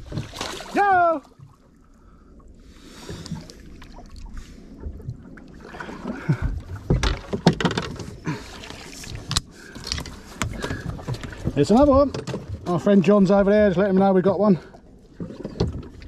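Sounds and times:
net pole knocking on boat: 6.8s - 8.1s.

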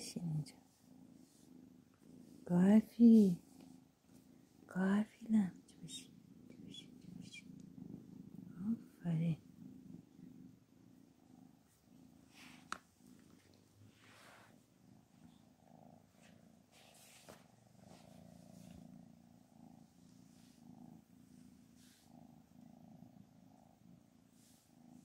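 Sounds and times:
cat purring: 0.0s - 25.0s
faint rustling: 11.4s - 22.9s.

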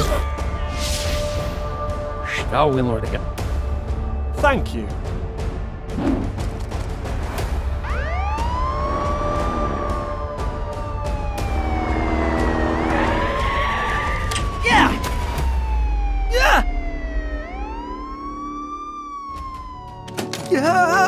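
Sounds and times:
police siren wailing: 7.7s - 21.0s.

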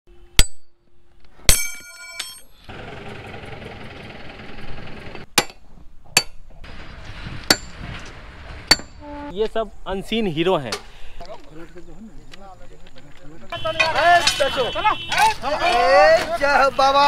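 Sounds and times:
steel tools clanking on track: 1.5s - 2.6s.

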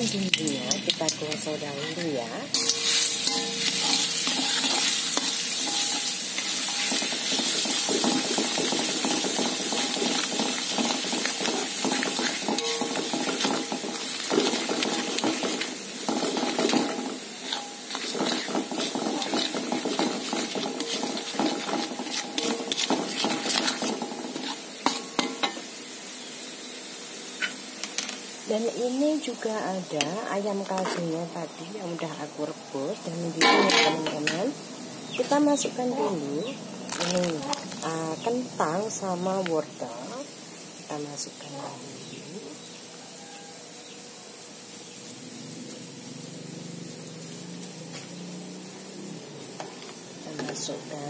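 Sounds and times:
spice paste sizzling in oil: 0.0s - 51.0s
metal spoon scraping pan: 1.3s - 25.6s, 30.0s - 31.2s, 33.4s - 34.4s.

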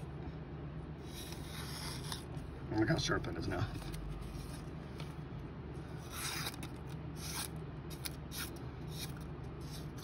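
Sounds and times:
knife slicing paper: 6.0s - 10.0s.

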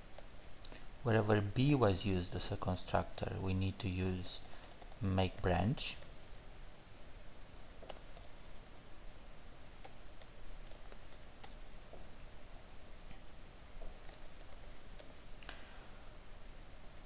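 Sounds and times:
computer keyboard keystrokes: 9.8s - 11.6s, 14.0s - 15.4s.

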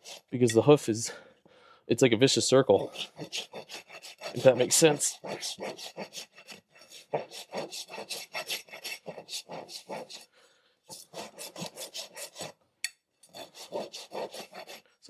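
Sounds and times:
rasp filing hoof: 0.0s - 0.5s, 2.8s - 10.3s, 10.9s - 12.6s, 13.3s - 15.0s.

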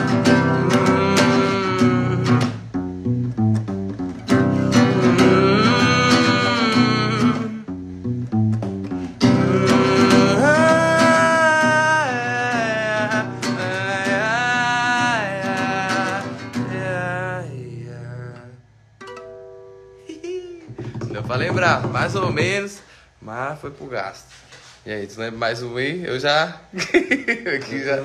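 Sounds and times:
man singing: 0.0s - 2.6s, 4.5s - 7.7s, 9.2s - 18.6s
acoustic guitar strumming: 0.0s - 22.8s.

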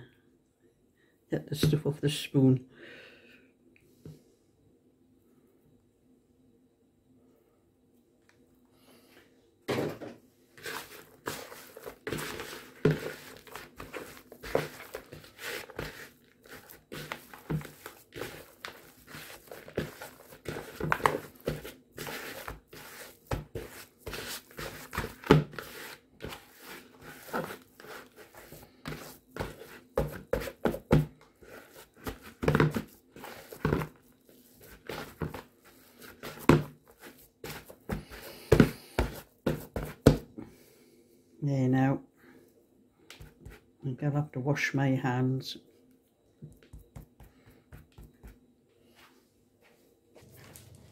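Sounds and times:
hands squeezing crumbly dough: 10.6s - 40.2s.

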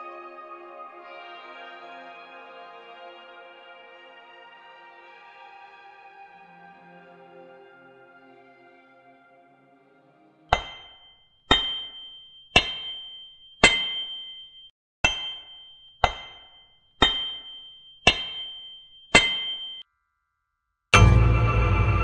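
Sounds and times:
hammer striking an anvil: 10.5s - 19.8s, 21.0s - 22.0s.

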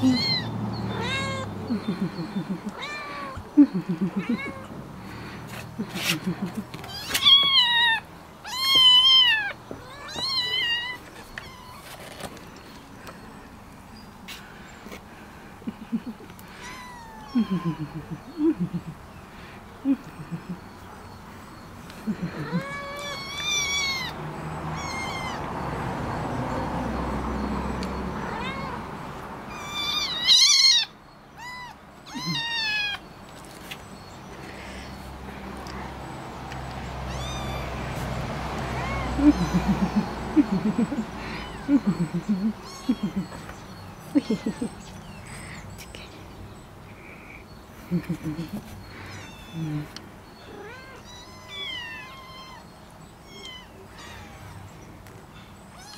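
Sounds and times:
kittens meowing: 0.0s - 12.3s, 15.7s - 19.0s, 21.9s - 25.6s, 27.3s - 33.5s, 36.5s - 45.6s, 47.0s - 55.9s.

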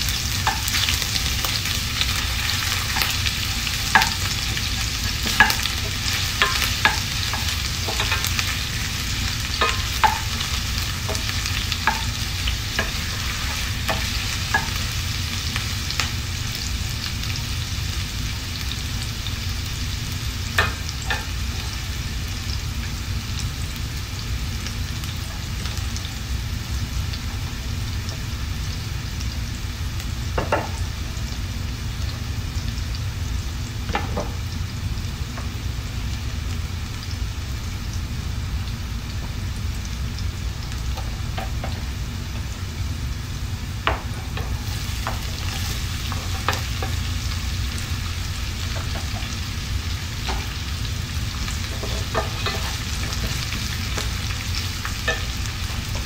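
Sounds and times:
oil sizzling in a pan: 0.0s - 56.0s
wooden spoon knocking on pan: 5.2s - 8.3s, 9.6s - 14.8s, 30.4s - 30.8s, 33.9s - 34.4s, 43.8s - 47.0s, 48.7s - 49.3s, 51.7s - 53.4s.

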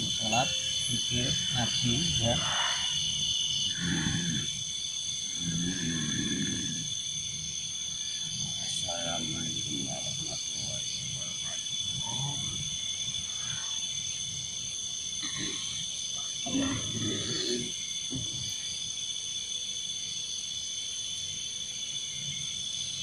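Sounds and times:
night insects chirping: 0.0s - 23.0s
man's rough vocal outburst: 3.7s - 4.5s, 16.5s - 17.7s.

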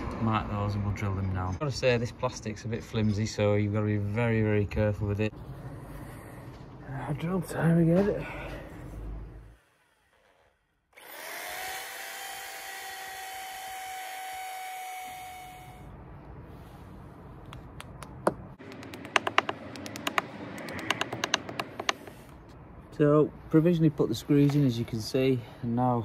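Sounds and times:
drill boring into brick: 9.6s - 15.8s
hammer tapping plastic plugs: 17.8s - 22.1s.

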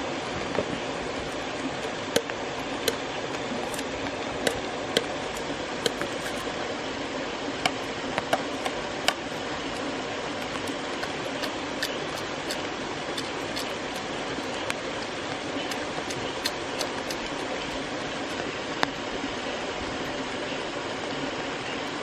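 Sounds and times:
machete splitting bamboo: 4.5s - 6.4s.

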